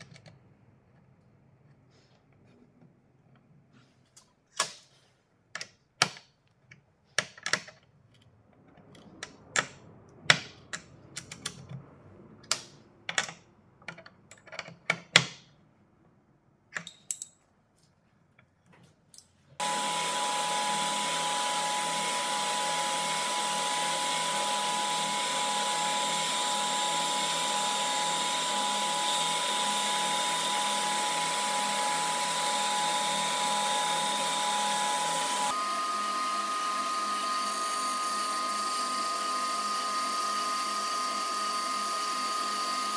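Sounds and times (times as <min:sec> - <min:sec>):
table saw running: 0:19.6 - 0:42.9.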